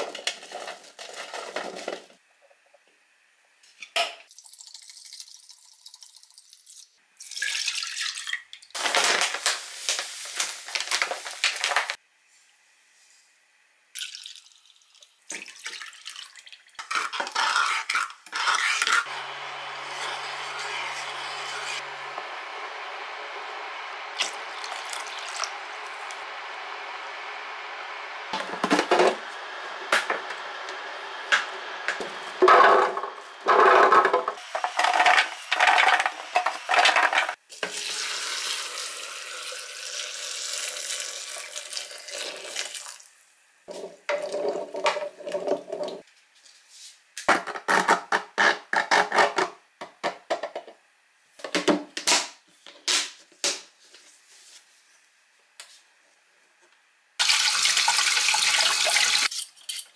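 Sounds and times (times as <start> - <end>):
liquid pouring: 4.3 - 8.7, 14.0 - 16.8, 24.2 - 25.5, 37.6 - 43.1.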